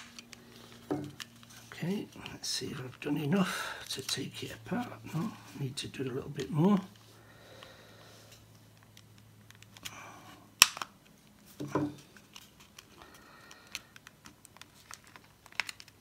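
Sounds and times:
plastic clips cracking: 0.0 - 4.8, 10.6 - 11.2, 12.2 - 16.0
small clicks and creaks: 6.3 - 16.0.

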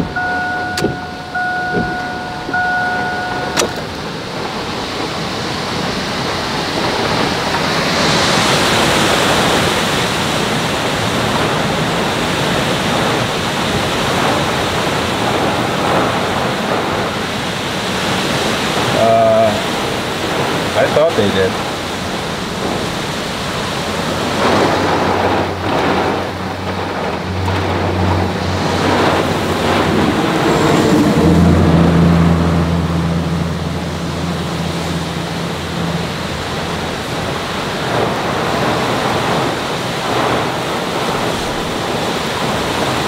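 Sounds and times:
steady electronic tone: 0.0 - 4.1
heavy rain hissing: 0.0 - 43.0
surf on the lake: 0.0 - 43.0
wind: 0.0 - 43.0.

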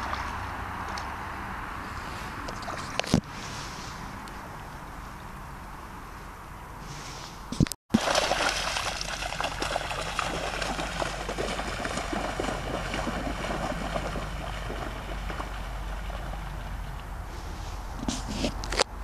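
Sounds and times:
dogs splashing through water: 7.9 - 17.2.

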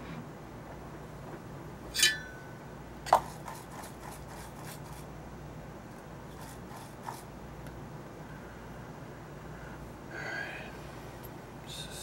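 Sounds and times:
low steady hum: 0.0 - 12.0
metal tool clinking: 2.0 - 2.4.

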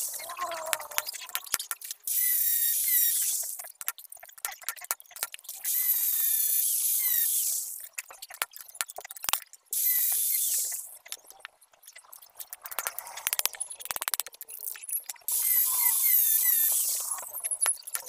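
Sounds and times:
rapid clicks: 0.0 - 18.0
metal clinks and taps: 17.4 - 18.0.

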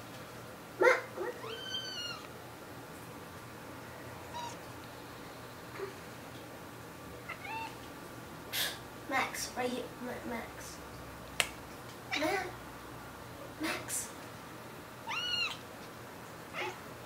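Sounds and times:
cat chirps: 1.2 - 2.2, 4.3 - 4.6, 7.3 - 7.8, 15.0 - 15.6
cat meowing: 1.2 - 2.3, 4.3 - 4.6, 7.3 - 7.8, 15.0 - 15.6, 16.6 - 16.8.

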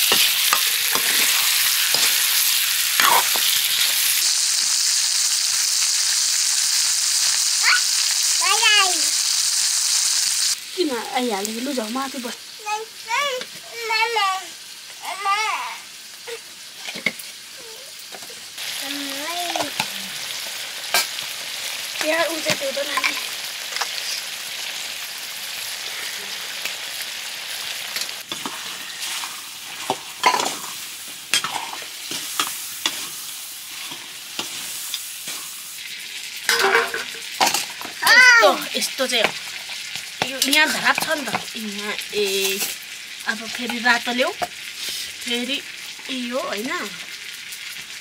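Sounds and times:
spoon scraping and knocking pan: 0.0 - 4.0, 28.3 - 33.2, 36.5 - 37.9
curry sizzling in a pan: 0.0 - 48.0.

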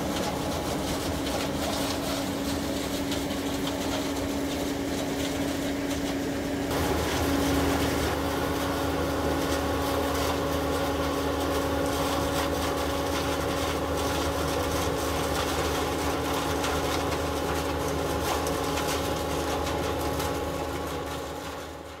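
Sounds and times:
combine harvester running: 0.0 - 22.0.

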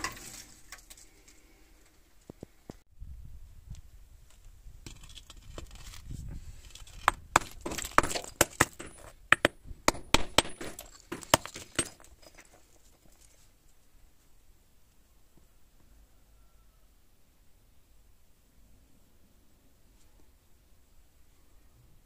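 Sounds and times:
crucible knocked against ground: 6.9 - 12.3
ceramic breaking and shards falling: 6.9 - 12.5.

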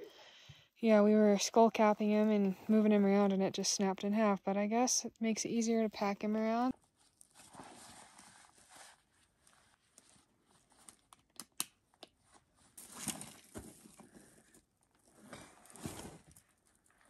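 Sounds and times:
clothing and backpack rustling: 6.7 - 11.0, 12.2 - 16.9.

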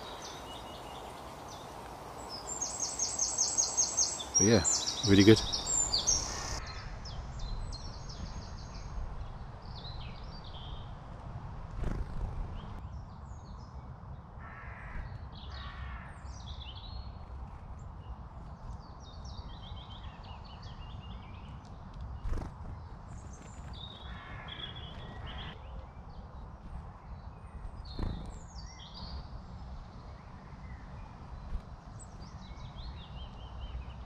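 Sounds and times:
harsh low bird calls: 0.0 - 9.0, 19.3 - 29.4
small birds chirping: 0.0 - 34.0.

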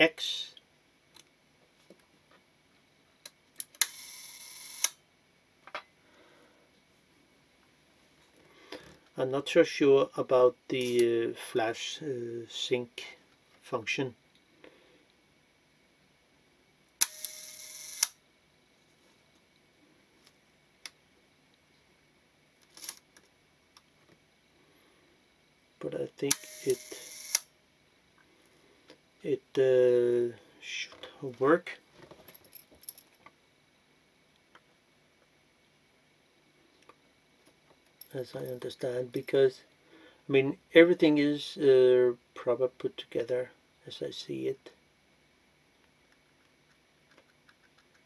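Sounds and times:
shutter whirr and closing click: 17.0 - 18.2, 26.3 - 27.5
small clicks: 46.1 - 48.0.

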